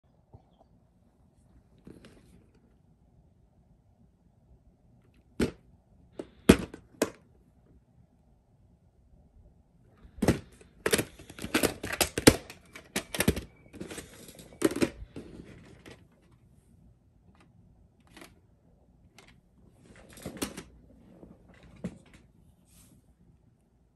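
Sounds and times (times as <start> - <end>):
plastic case scraping: 10.0 - 16.4
hard plastic clacks and rattles: 10.1 - 16.4
soft rubbing noise: 22.5 - 23.2.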